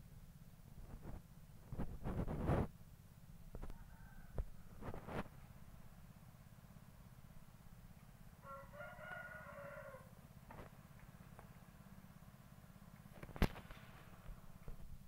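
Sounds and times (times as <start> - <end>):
steady low hum: 0.0 - 15.0
rooster crowing: 3.7 - 4.7, 8.4 - 10.2.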